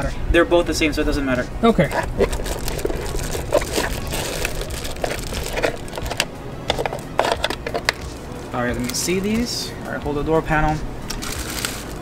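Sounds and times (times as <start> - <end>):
packaging crinkling: 1.9 - 8.3, 11.1 - 12.0.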